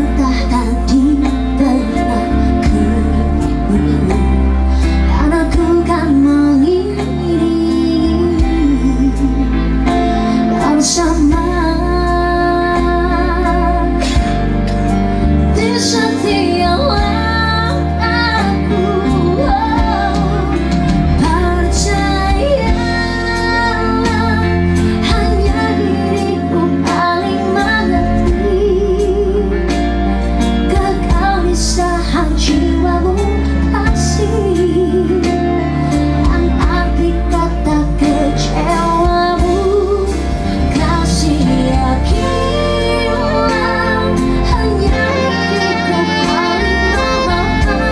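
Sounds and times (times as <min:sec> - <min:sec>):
live band with electric guitar: 0:00.0 - 0:47.9
woman and man singing duet: 0:15.5 - 0:29.5, 0:36.2 - 0:47.9.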